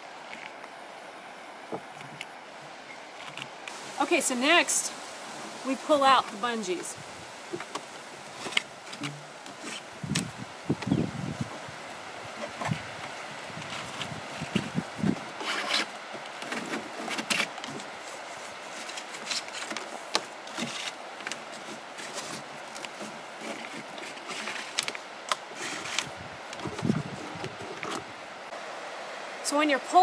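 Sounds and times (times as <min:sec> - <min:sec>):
cord rubbing and scraping plastic: 0:07.5 - 0:11.6, 0:12.4 - 0:28.2.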